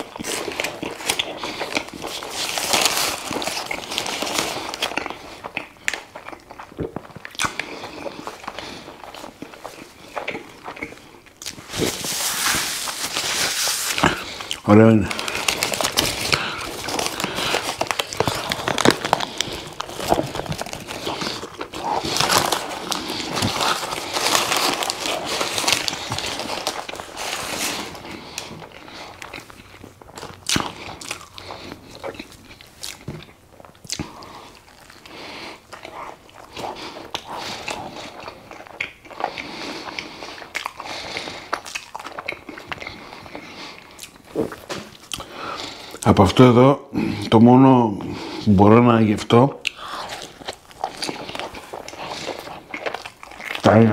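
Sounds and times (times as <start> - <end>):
paper wrapper crinkling: 0.0 - 6.2, 11.4 - 38.8
biting and chewing food: 0.0 - 46.1, 49.4 - 53.9.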